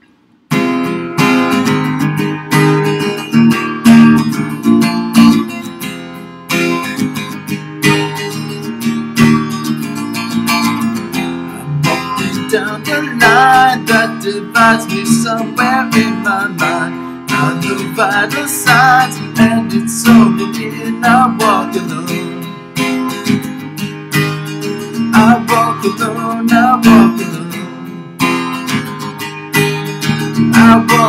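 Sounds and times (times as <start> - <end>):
acoustic guitar strumming chords: 0.0 - 31.0
man singing: 11.2 - 22.6, 25.0 - 28.0, 30.4 - 31.0.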